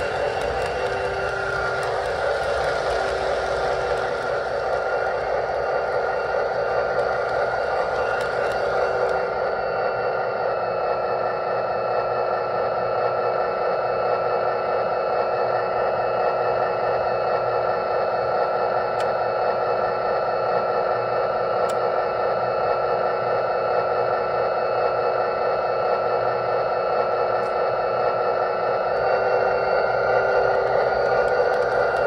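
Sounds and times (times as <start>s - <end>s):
diesel engine idle through speaker: 0.0s - 9.7s.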